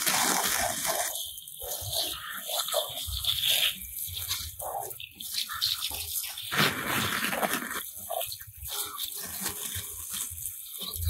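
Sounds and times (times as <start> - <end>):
water splashing on wet ground: 0.0 - 2.3, 5.2 - 11.0
water spraying from hose nozzle: 0.0 - 11.0.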